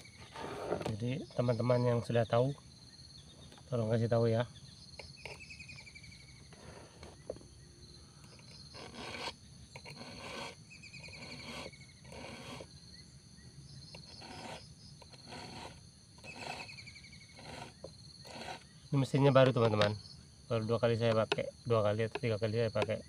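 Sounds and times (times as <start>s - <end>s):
file rasping on chainsaw chain: 5.0s - 5.9s, 8.2s - 12.7s, 13.9s - 19.9s.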